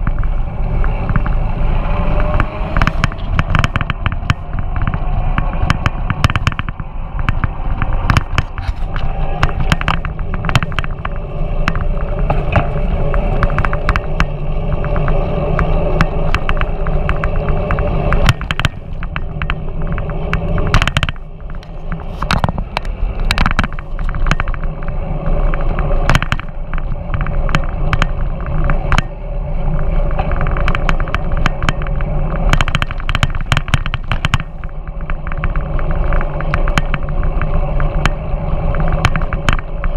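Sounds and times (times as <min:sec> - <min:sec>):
bike knocks and rattles: 0:00.0 - 0:39.9
road rumble: 0:00.0 - 0:39.9
wind: 0:00.0 - 0:39.9.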